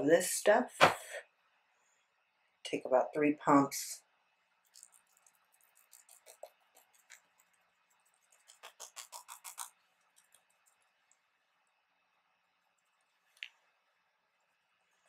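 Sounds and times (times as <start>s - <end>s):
fingertips patting skin: 4.8s - 10.6s.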